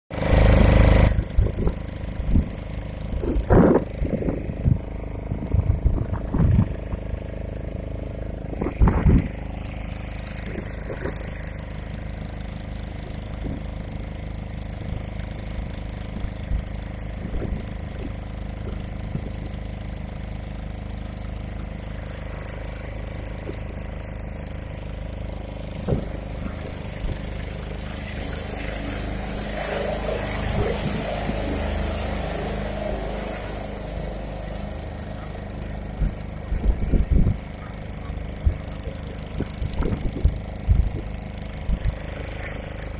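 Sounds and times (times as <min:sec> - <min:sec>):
outboard motor running: 0:00.1 - 0:42.9
hiss of wind and water: 0:08.4 - 0:42.9
loud thumps: 0:25.8 - 0:26.4.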